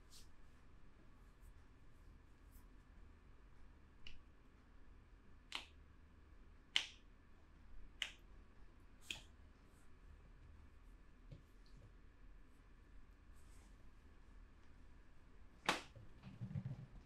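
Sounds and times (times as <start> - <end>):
short sharp snaps: 5.5 - 5.8, 6.7 - 7.1, 8.0 - 8.3, 9.0 - 9.4.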